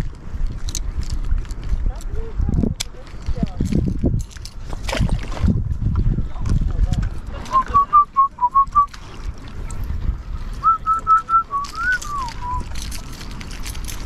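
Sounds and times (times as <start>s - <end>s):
person whistling short notes: 7.5s - 8.9s, 10.6s - 12.7s.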